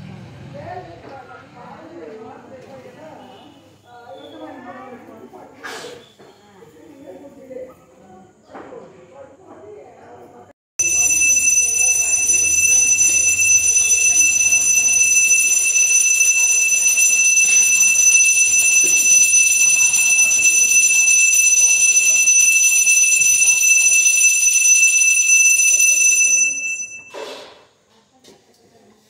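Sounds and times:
temple bell ringing: 0:10.8 - 0:27.2.

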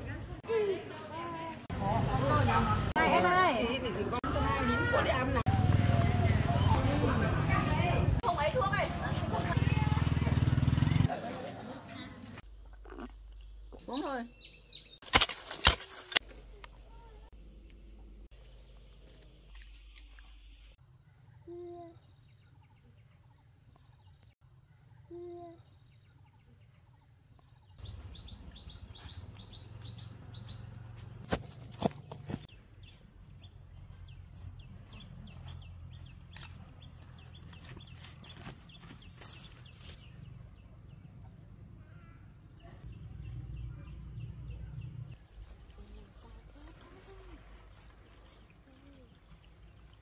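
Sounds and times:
outdoor noise: 0:00.0 - 0:50.0
bird calls: 0:12.3 - 0:15.0, 0:15.6 - 0:50.0.

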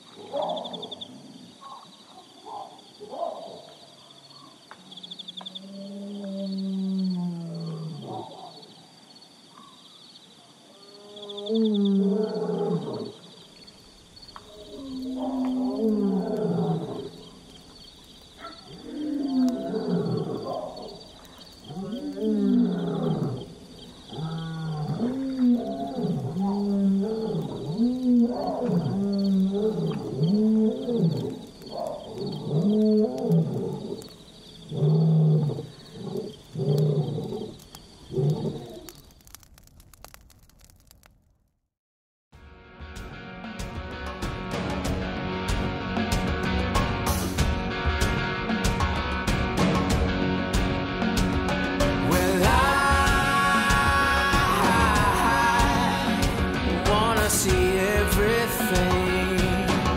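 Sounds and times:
lion roaring: 0:05.6 - 0:08.6, 0:10.9 - 0:13.2, 0:14.5 - 0:17.3, 0:18.4 - 0:21.0, 0:21.7 - 0:34.1, 0:34.7 - 0:38.9
lion grunting: 0:21.7 - 0:23.5, 0:24.1 - 0:34.1.

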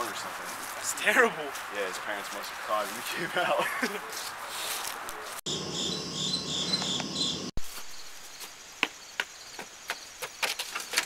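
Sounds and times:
crickets chirping: 0:05.5 - 0:10.9.

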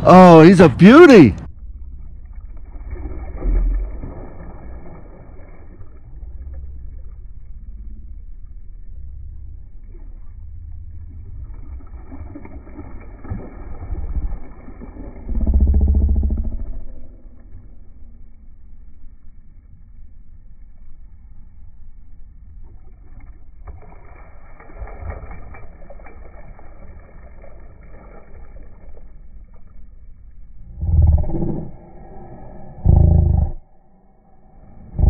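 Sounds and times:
steady low rumble: 0:00.0 - 0:35.0
fish splashing and thrashing: 0:01.9 - 0:07.4, 0:09.8 - 0:17.8, 0:22.6 - 0:33.0.

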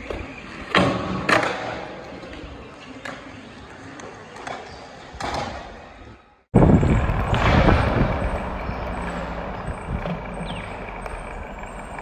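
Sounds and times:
skateboard clack: 0:00.0 - 0:05.8
skateboard wheels rolling on concrete: 0:00.0 - 0:12.0
deep rushing noise: 0:06.5 - 0:12.0.

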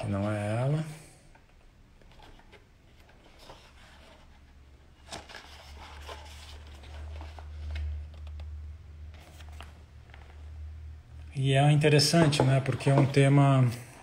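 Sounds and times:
paper pages rustling: 0:02.0 - 0:10.6, 0:12.0 - 0:14.0.

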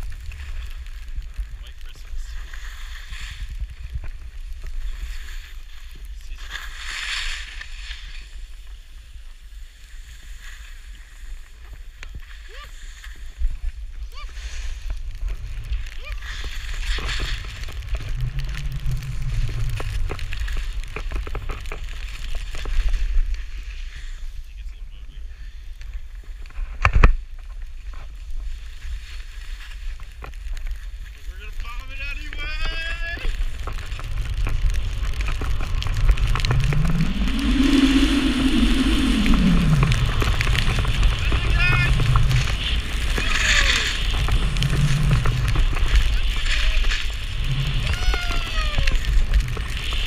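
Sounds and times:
skis hissing through snow: 0:00.0 - 0:26.4, 0:27.5 - 0:50.0
low rumble: 0:14.7 - 0:23.6, 0:31.8 - 0:50.0.

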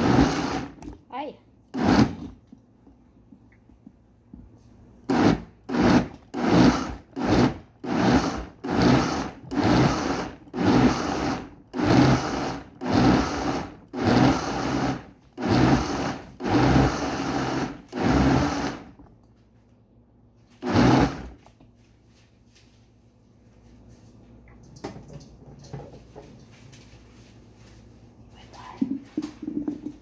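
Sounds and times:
blender motor bursts: 0:00.0 - 0:00.8, 0:01.8 - 0:02.2, 0:05.1 - 0:18.9, 0:20.6 - 0:21.3.

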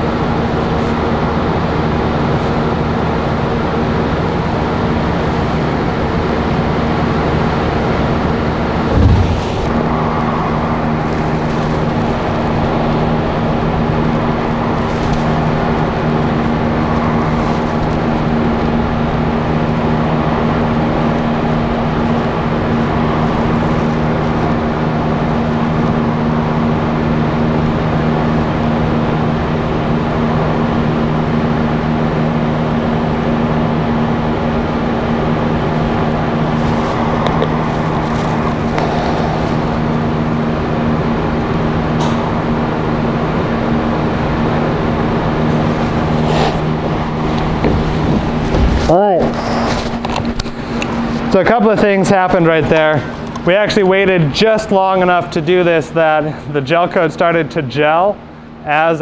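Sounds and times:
motor hum: 0:08.7 - 0:10.1
rushing noise: 0:08.8 - 0:10.8.

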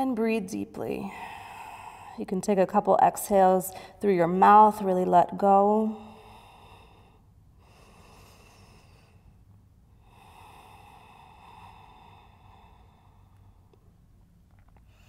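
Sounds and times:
person breathing slowly: 0:01.0 - 0:02.2, 0:06.0 - 0:14.0.

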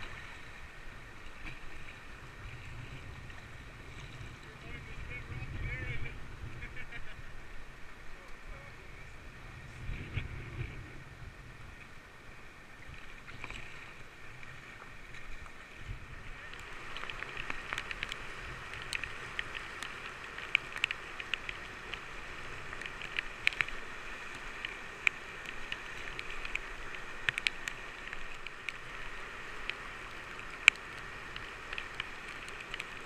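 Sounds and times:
river rapids rushing: 0:15.6 - 0:33.0.

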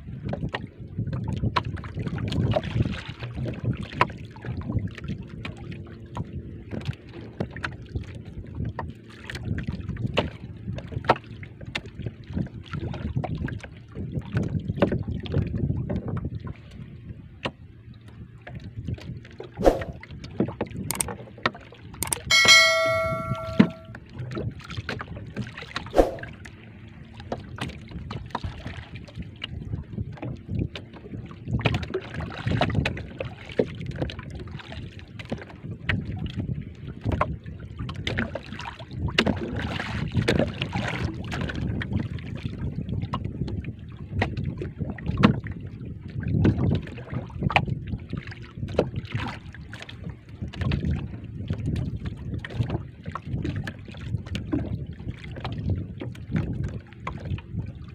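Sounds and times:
water lapping against boat hull: 0:00.0 - 0:22.2, 0:24.3 - 0:57.9
wind buffeting microphone: 0:38.8 - 0:49.2, 0:50.0 - 0:57.9.

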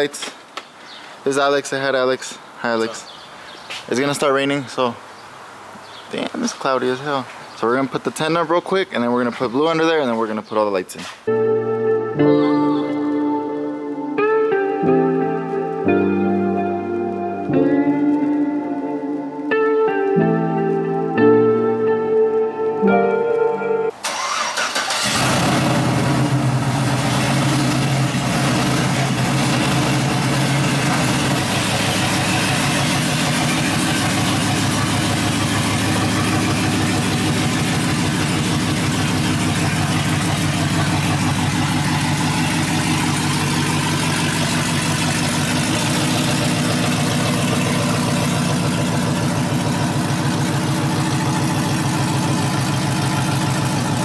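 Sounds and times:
pickup engine running at low revs: 0:25.0 - 0:54.0.

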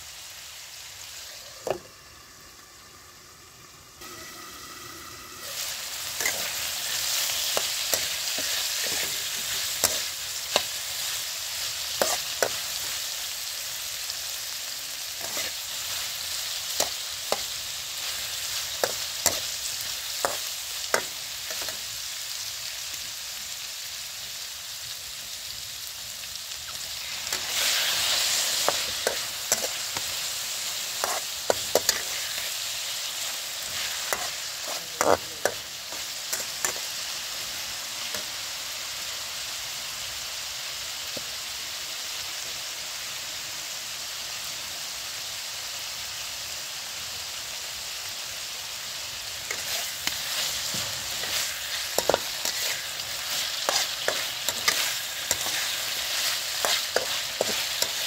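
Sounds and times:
meat sizzling in a wok: 0:00.0 - 0:58.0
metal spatula scraping a pan: 0:05.4 - 0:11.2, 0:11.9 - 0:13.0, 0:15.2 - 0:16.0, 0:27.0 - 0:37.0, 0:49.5 - 0:58.0.

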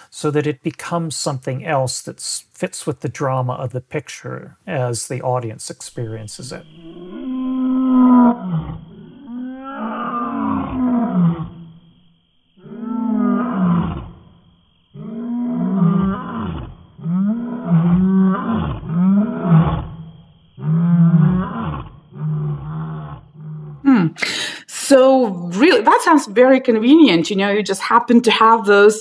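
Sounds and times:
lions roaring: 0:06.4 - 0:11.7, 0:12.6 - 0:14.3, 0:15.0 - 0:23.9.

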